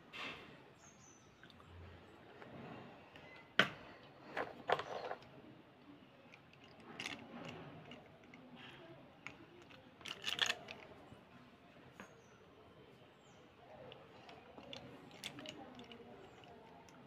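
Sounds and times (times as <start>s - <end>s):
light scrapes: 4.2s - 5.2s
pencil clicks: 13.9s - 17.0s.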